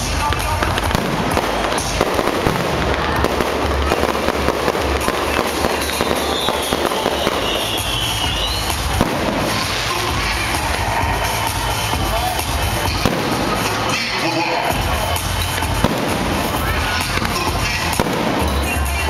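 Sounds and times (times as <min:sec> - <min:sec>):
fireworks crackling and popping: 0:00.0 - 0:19.0
firework whistle gliding down: 0:05.6 - 0:08.8.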